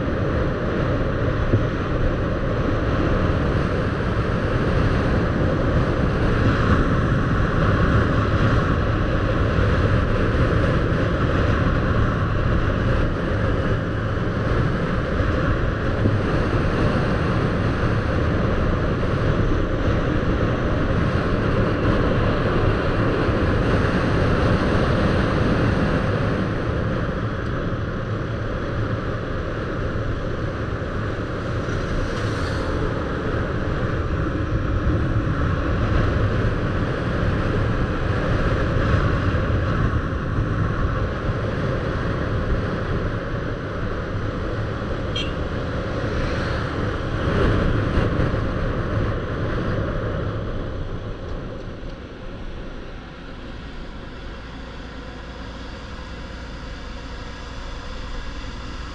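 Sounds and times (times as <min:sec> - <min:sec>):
road noise: 0:00.0 - 0:58.9
wind noise: 0:00.0 - 0:58.9
motorbike engine running: 0:44.2 - 0:47.8.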